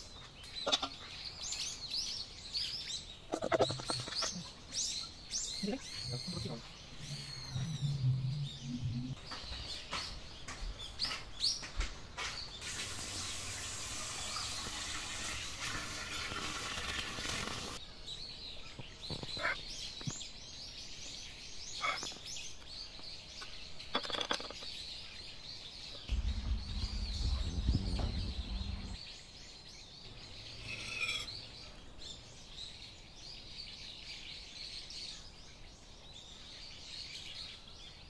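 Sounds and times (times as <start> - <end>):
small birds chirping: 0.0 - 38.0
steady hiss: 12.6 - 17.8.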